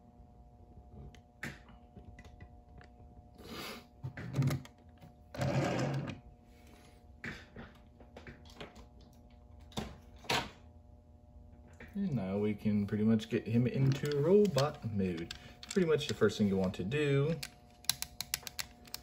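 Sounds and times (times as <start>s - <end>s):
plastic toys clicking and knocking: 13.7s - 19.0s.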